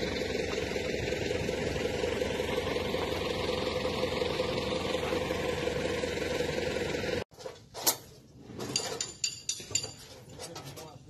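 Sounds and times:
tractor diesel engine idling: 0:00.0 - 0:07.2.

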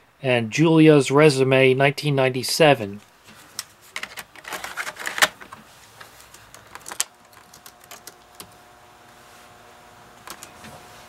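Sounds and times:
floppy drive humming: 0:02.2 - 0:11.0
light keystrokes on keyboard: 0:06.3 - 0:08.6, 0:10.2 - 0:10.6.

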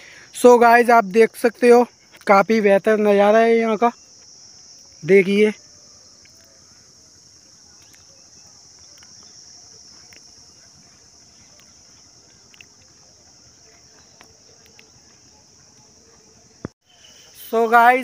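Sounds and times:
crickets chirring: 0:00.0 - 0:18.0
faint clicks: 0:13.6 - 0:15.2.

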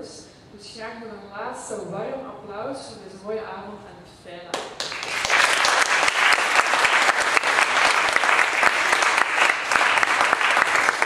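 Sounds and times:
audience applauding: 0:04.8 - 0:11.0.

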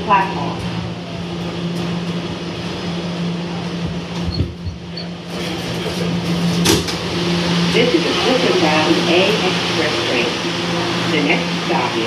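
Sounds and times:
subway car hum: 0:00.0 - 0:12.0.

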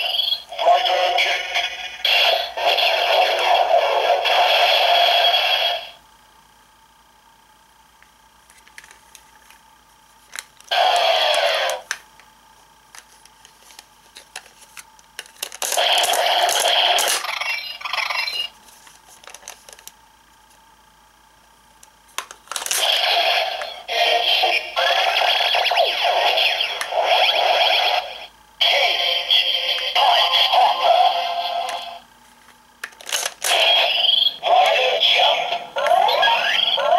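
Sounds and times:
toy electronic voice calls: 0:00.0 - 0:05.9, 0:10.7 - 0:11.9, 0:15.7 - 0:18.5, 0:22.8 - 0:32.0, 0:33.4 - 0:36.9.

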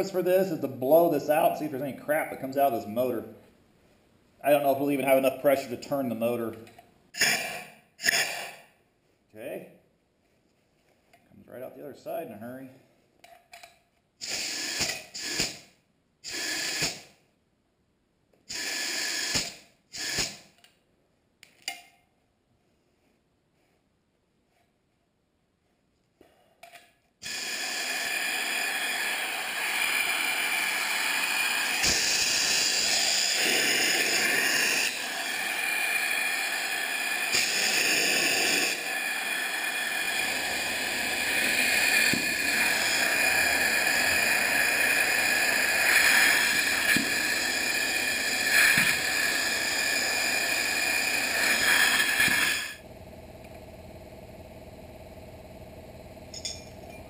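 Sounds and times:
compressed air hissing: 0:07.2 - 0:08.7, 0:14.2 - 0:17.2, 0:18.5 - 0:20.6, 0:27.2 - 0:52.8
motor whine: 0:28.3 - 0:57.0.

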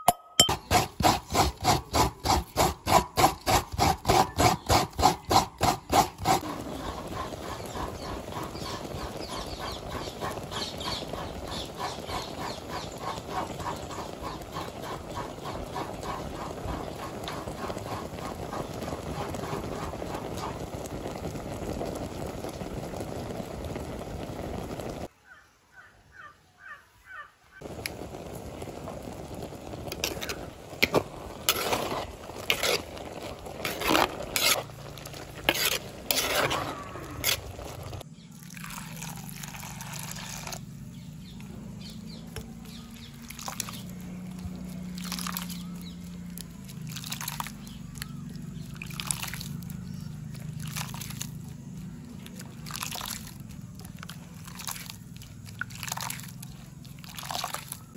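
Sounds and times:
pot bubbling on the boil: 0:00.0 - 0:25.1, 0:27.6 - 0:57.9
hands squeezing wet coconut: 0:00.6 - 0:22.9, 0:29.7 - 0:40.6, 0:42.4 - 0:57.9
wet squelches and splashes: 0:42.8 - 0:57.9.

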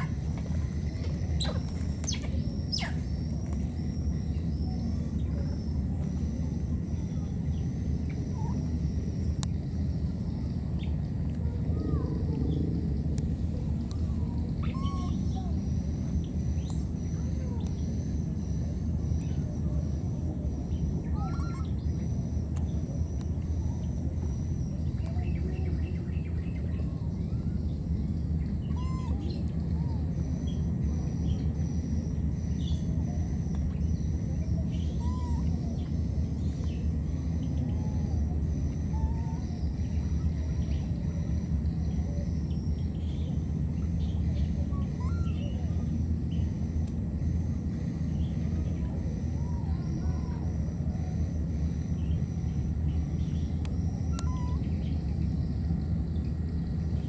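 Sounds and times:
bird chirps and calls: 0:00.0 - 0:03.2, 0:14.5 - 0:15.6, 0:20.7 - 0:21.8, 0:28.5 - 0:29.8, 0:34.7 - 0:38.2, 0:42.5 - 0:46.5, 0:52.9 - 0:55.3
low outdoor rumble: 0:00.0 - 0:57.0.

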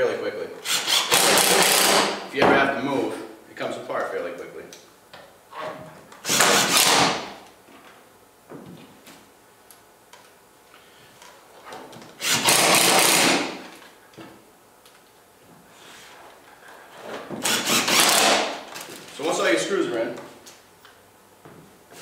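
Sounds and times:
cordless drill driving screws: 0:00.6 - 0:02.2, 0:06.2 - 0:07.2, 0:12.2 - 0:13.6, 0:17.4 - 0:18.6.

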